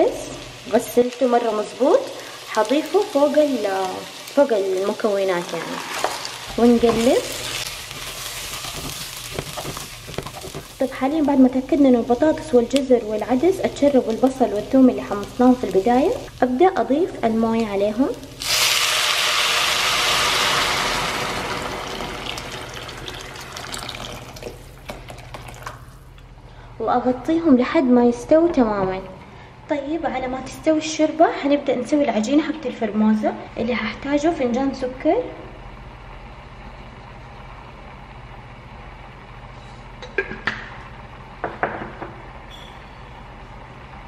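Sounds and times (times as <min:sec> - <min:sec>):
steady low hum: 0:06.1 - 0:18.5, 0:25.8 - 0:44.0
water pouring into a pot: 0:18.4 - 0:25.8.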